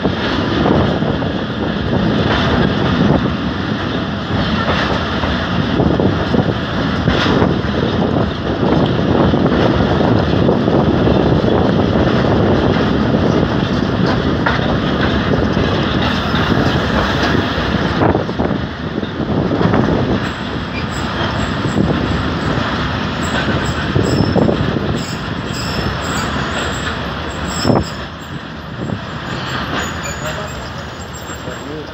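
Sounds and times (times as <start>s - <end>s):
rushing air: 0.0s - 30.0s
train wheels rumbling on track: 0.0s - 31.9s.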